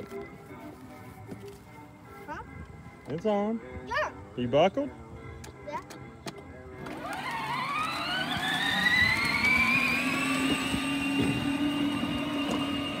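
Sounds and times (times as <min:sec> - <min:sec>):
electric motors whining: 0:06.8 - 0:13.0.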